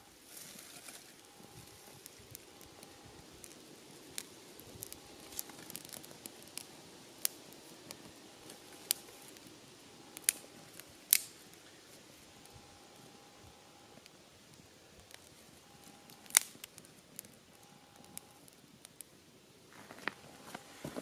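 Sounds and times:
kindling fire crackling: 0:00.0 - 0:21.0
sharp pops and snaps: 0:00.9 - 0:11.8, 0:13.7 - 0:19.1.

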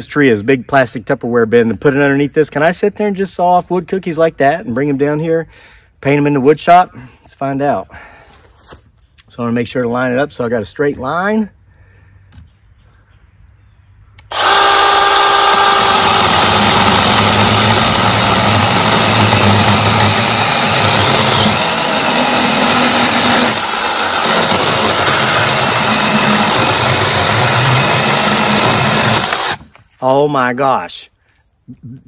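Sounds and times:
chainsaw cutting log: 0:14.2 - 0:29.8.

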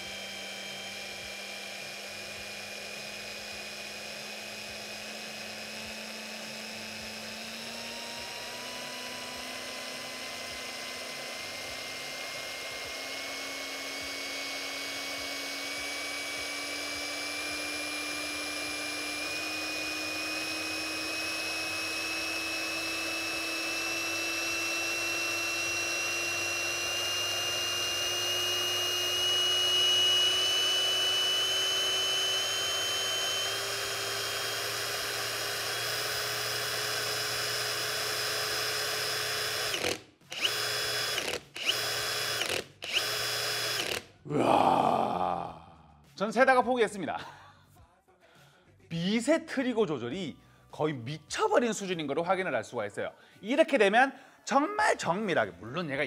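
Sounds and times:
cordless drill motor whine: 0:00.0 - 0:44.0.

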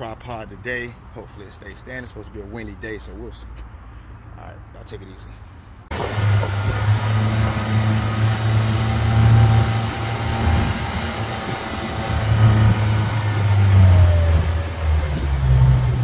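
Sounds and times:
outboard motor running: 0:05.9 - 0:16.0.

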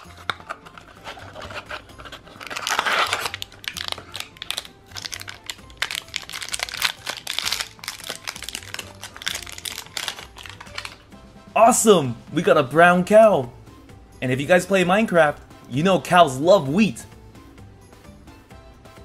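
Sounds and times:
foil wrapper crinkling: 0:00.0 - 0:11.0.

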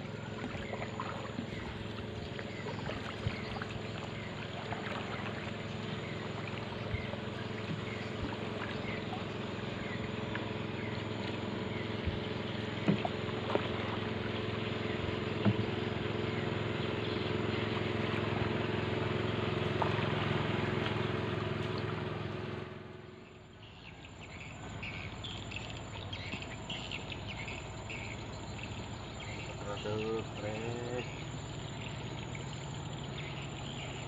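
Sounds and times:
canoe paddling in water: 0:00.0 - 0:34.0
insects chirping: 0:00.0 - 0:34.0
steady droning hum: 0:00.0 - 0:34.0
paddle knocking against hull: 0:00.3 - 0:16.2, 0:17.6 - 0:22.0.

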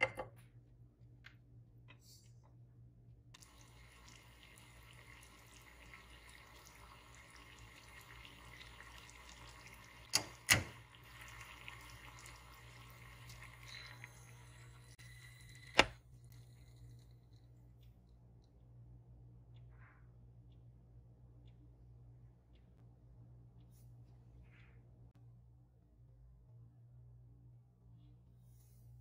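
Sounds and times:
syrup boiling in a saucepan: 0:03.4 - 0:17.6.

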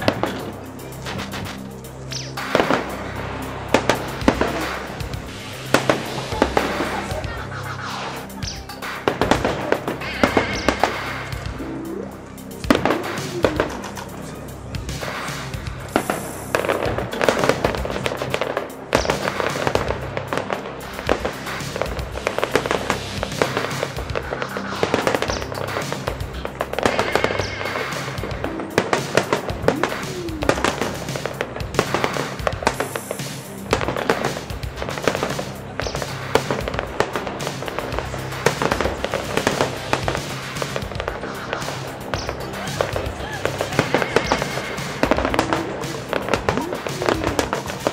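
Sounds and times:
background music: 0:00.0 - 0:47.9
firework shells bursting: 0:00.0 - 0:47.9.

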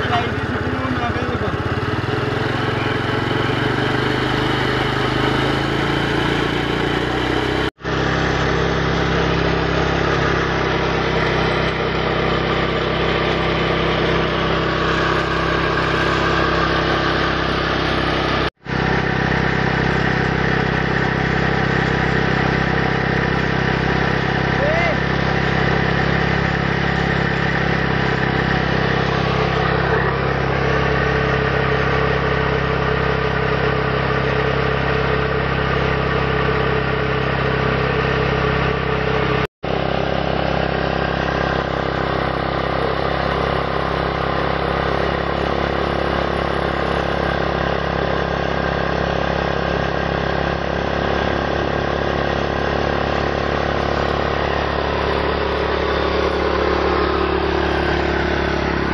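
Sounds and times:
motorcycle engine running: 0:00.0 - 0:58.9.

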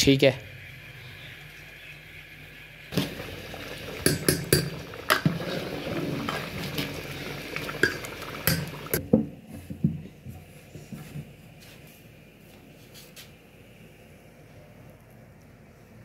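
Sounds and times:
liquid sloshing in pot: 0:03.0 - 0:09.0.

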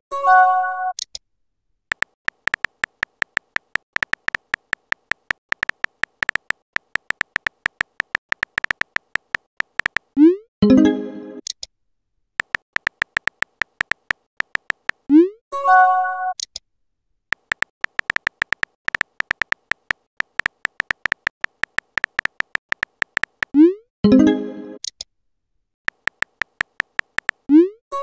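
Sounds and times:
phone keyboard typing clicks: 0:01.9 - 0:10.2, 0:12.4 - 0:15.1, 0:17.3 - 0:23.6, 0:25.9 - 0:27.5.

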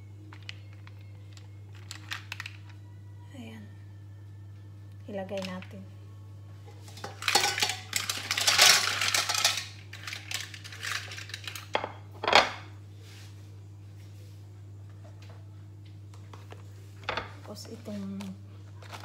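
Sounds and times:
shells clattering in a metal pot: 0:06.9 - 0:12.5.

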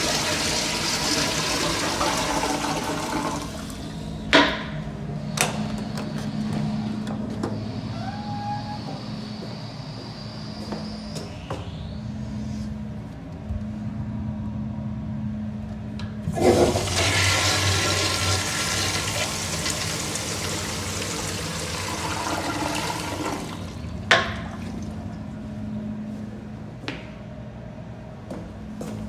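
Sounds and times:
toilet flushing: 0:00.0 - 0:07.7, 0:16.2 - 0:25.5.

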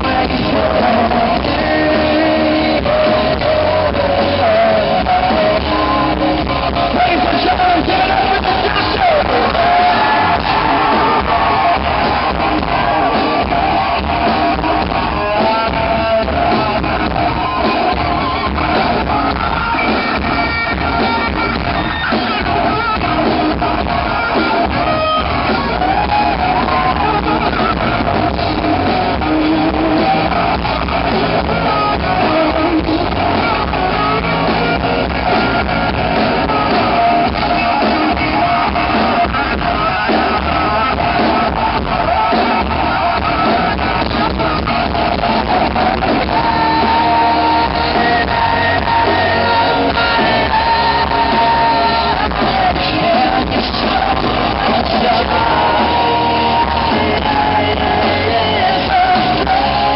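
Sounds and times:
man singing: 0:00.0 - 0:21.6, 0:22.3 - 0:59.9
electric guitars: 0:00.0 - 0:59.9
live rock band playing: 0:00.0 - 0:59.9.

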